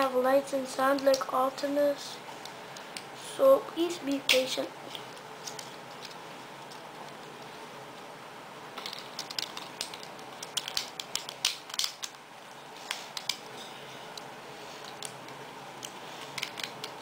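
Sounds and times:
plastic toy clicks and snaps: 8.8 - 12.2.

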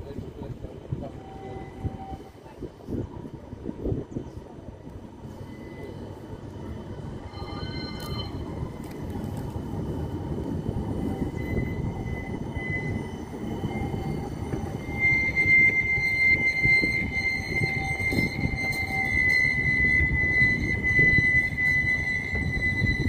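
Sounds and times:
tram wheels rumbling on rail: 0.0 - 23.0
high wheel squeal: 1.0 - 2.4, 5.3 - 9.1, 9.8 - 23.0.

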